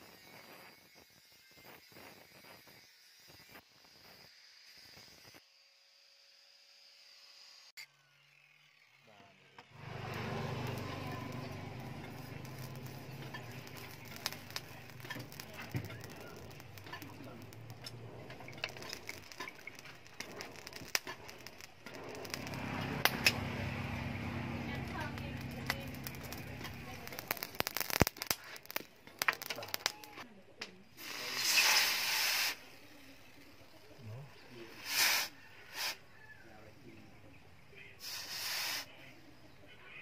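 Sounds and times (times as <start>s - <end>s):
steam hiss from quenching: 0.0s - 5.4s, 9.8s - 30.2s, 31.0s - 36.3s, 38.0s - 39.0s
forge fire crackling: 9.7s - 39.7s
steady low hum: 9.8s - 27.8s
sharp pops: 9.8s - 32.6s.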